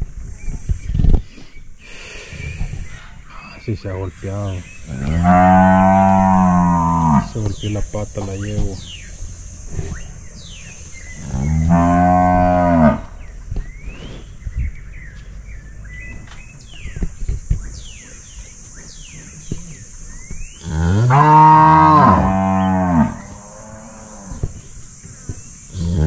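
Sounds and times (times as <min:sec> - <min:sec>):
small birds chirping: 0:00.0 - 0:26.0
cattle mooing: 0:05.0 - 0:07.4, 0:11.3 - 0:13.1, 0:20.7 - 0:24.4.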